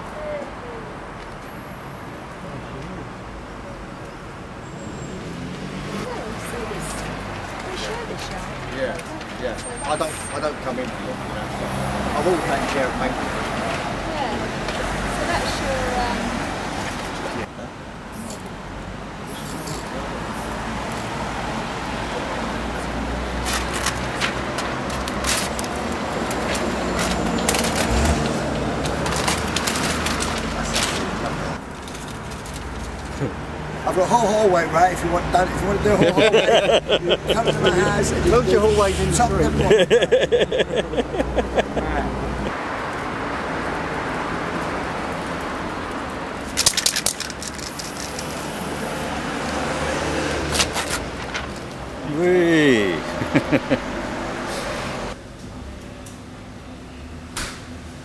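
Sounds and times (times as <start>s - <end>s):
low hum of street traffic: 0.0s - 58.0s
stencil sheet handled: 46.5s - 48.5s.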